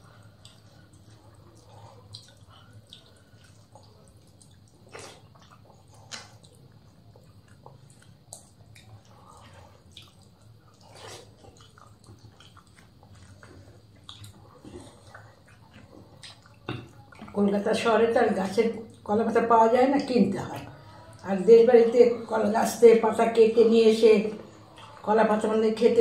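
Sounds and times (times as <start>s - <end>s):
mouth smacks and chewing: 0.0s - 17.4s, 24.6s - 25.0s.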